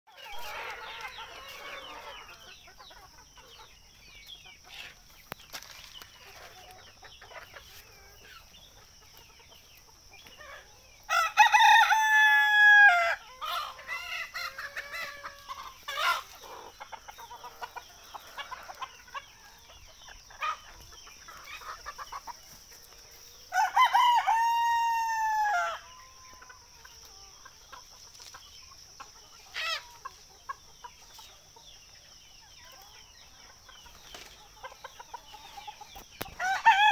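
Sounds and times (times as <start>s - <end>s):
roosters crowing: 0.1s - 3.6s, 10.4s - 22.3s, 23.3s - 27.8s, 29.4s - 30.2s, 34.6s - 36.9s
hens clucking softly: 13.3s - 23.4s.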